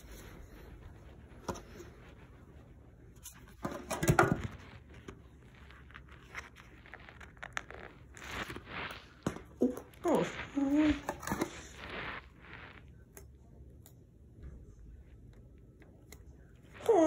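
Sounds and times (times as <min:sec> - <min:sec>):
rustling scrape: 0:00.0 - 0:13.0.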